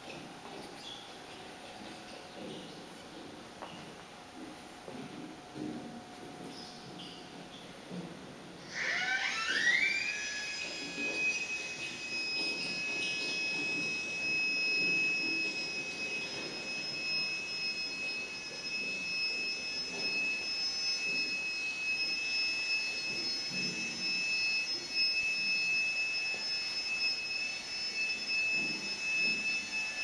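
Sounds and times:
high-pitched whine: 0:00.0 - 0:30.0.

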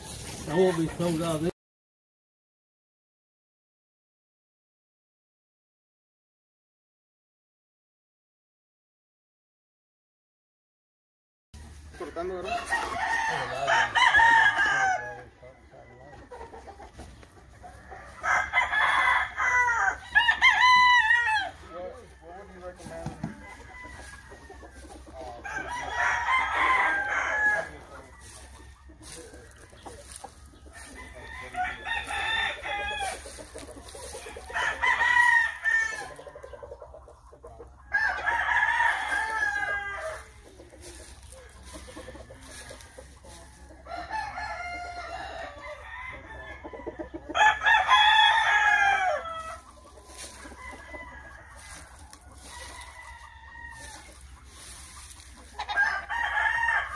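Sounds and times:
roosters crowing: 0:11.6 - 0:56.9.

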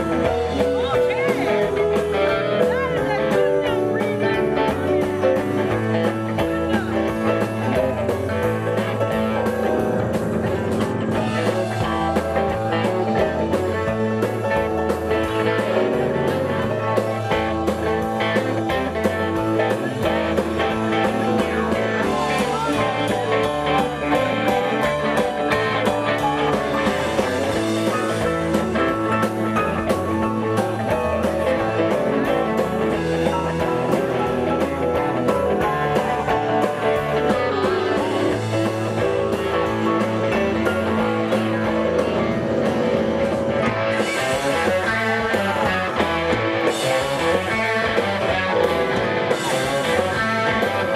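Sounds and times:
live rock band playing: 0:00.0 - 0:50.9.

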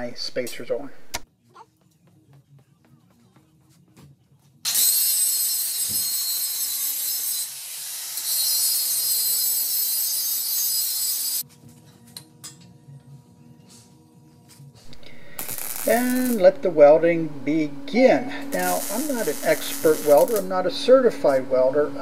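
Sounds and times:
angle grinder grinding metal: 0:04.7 - 0:11.4, 0:14.9 - 0:16.7, 0:18.4 - 0:21.5.

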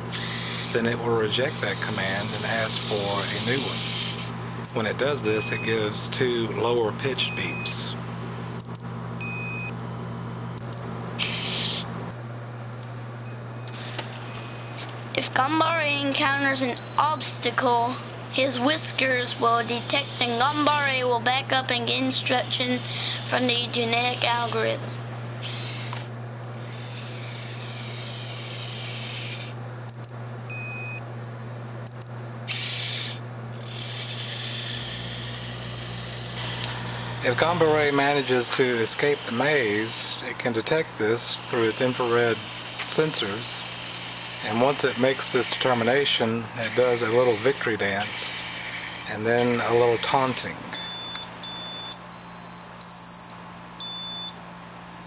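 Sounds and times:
robot motors whirring: 0:00.1 - 0:05.7, 0:10.6 - 0:12.0, 0:13.3 - 0:17.8, 0:18.4 - 0:29.6, 0:32.5 - 0:52.0
robot speaker beeping: 0:04.6 - 0:05.9, 0:06.5 - 0:09.7, 0:13.8 - 0:24.8, 0:49.3 - 0:54.3
short high-pitched beeps: 0:06.6 - 0:11.4, 0:16.6 - 0:17.2, 0:29.9 - 0:32.1, 0:50.8 - 0:54.4
electronic tones: 0:13.3 - 0:17.4, 0:49.4 - 0:54.3.

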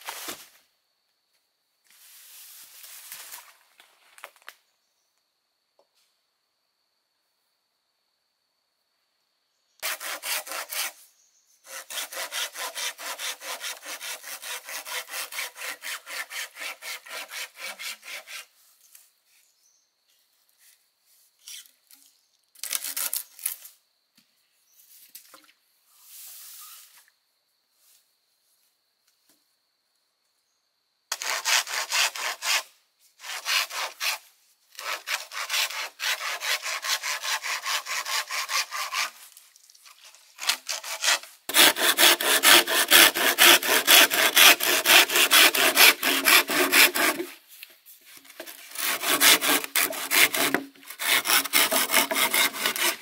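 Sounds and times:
bamboo being sawn by hand: 0:09.8 - 0:11.0, 0:11.7 - 0:19.4, 0:21.4 - 0:23.7, 0:31.1 - 0:53.0.

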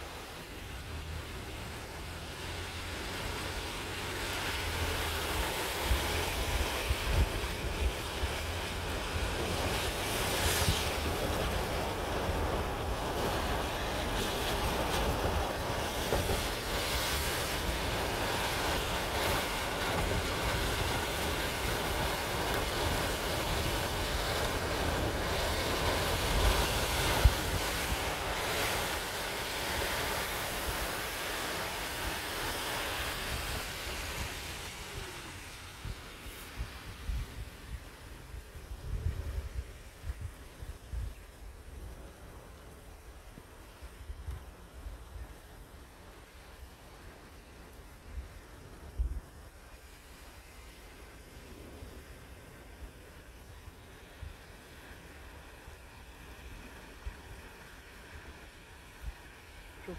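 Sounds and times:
steady rain: 0:00.0 - 0:59.9
wind buffeting microphone: 0:02.4 - 0:59.9.

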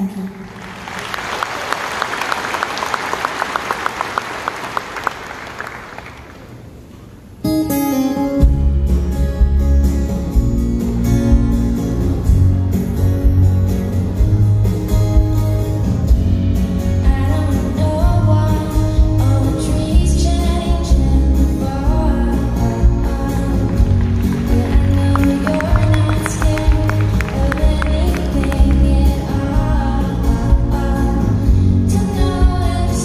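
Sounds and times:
audience applauding: 0:00.0 - 0:06.7, 0:23.6 - 0:29.1
live band playing: 0:07.5 - 0:33.0
deep bass: 0:08.5 - 0:33.0.

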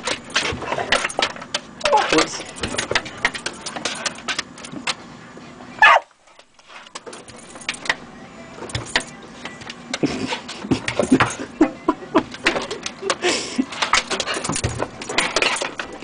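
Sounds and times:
dog yelping: 0:05.8 - 0:06.1.

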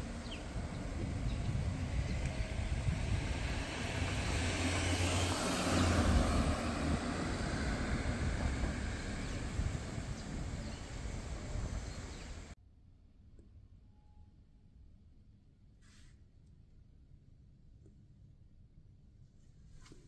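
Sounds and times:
car traffic rumble: 0:00.0 - 0:12.6.

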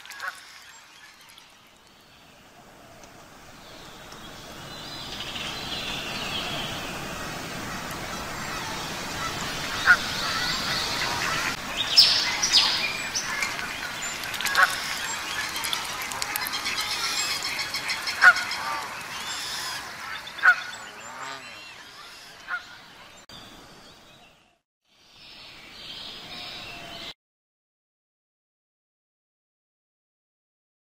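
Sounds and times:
small birds chirping: 0:07.7 - 0:24.6
geese honking: 0:09.2 - 0:11.6, 0:12.6 - 0:22.8.

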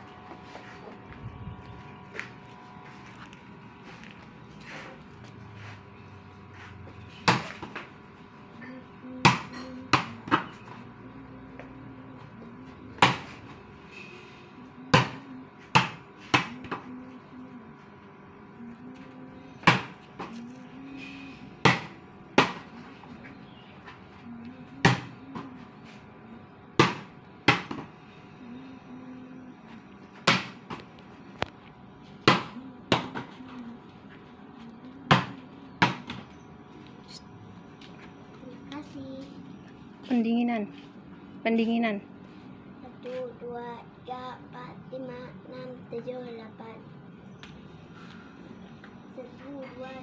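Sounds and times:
ball bouncing on pavement: 0:07.2 - 0:07.9, 0:09.2 - 0:10.6, 0:19.6 - 0:20.4, 0:21.6 - 0:22.7, 0:24.8 - 0:25.6, 0:26.8 - 0:27.9, 0:30.2 - 0:30.9, 0:32.2 - 0:33.4, 0:35.1 - 0:36.3.

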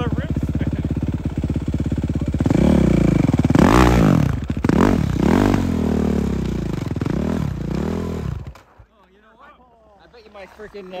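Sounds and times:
dirt bike engine revving: 0:00.0 - 0:08.6.

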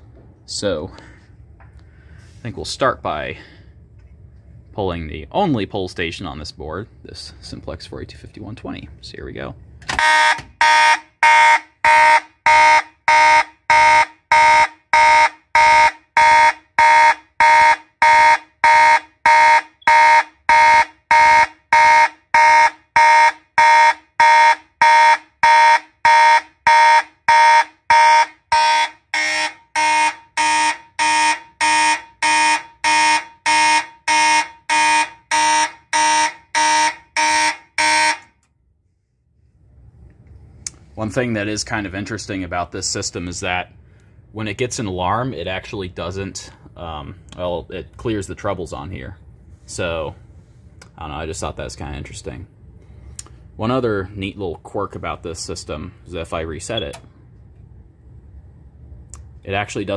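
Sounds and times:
fire alarm horn blasts: 0:10.0 - 0:38.4.

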